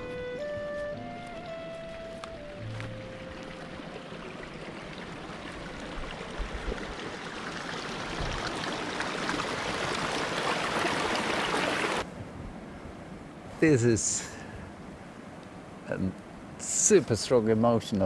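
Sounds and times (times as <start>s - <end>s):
rushing water hiss: 2.4s - 12.1s.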